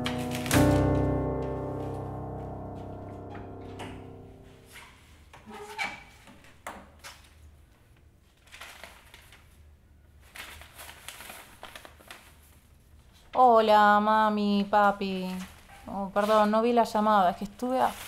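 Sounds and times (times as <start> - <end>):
door opening: 0.0 - 4.8
music: 0.0 - 4.8
paper rustling: 8.2 - 13.4, 15.1 - 18.0.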